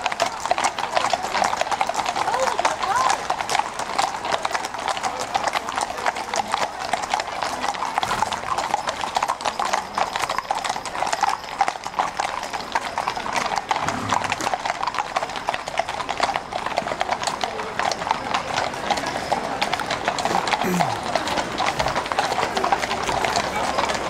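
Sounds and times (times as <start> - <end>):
horse hooves clopping on tarmac: 0.0 - 24.0.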